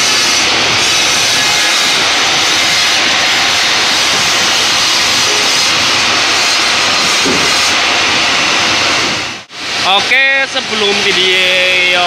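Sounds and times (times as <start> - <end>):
sawmill mechanical din: 0.0 - 9.3.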